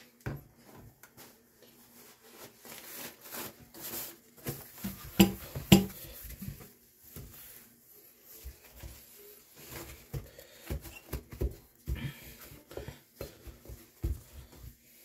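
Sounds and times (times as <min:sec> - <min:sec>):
paper towel rubbing on sink: 0:01.8 - 0:10.1, 0:13.0 - 0:15.0
hand bumping basin: 0:04.8 - 0:06.2.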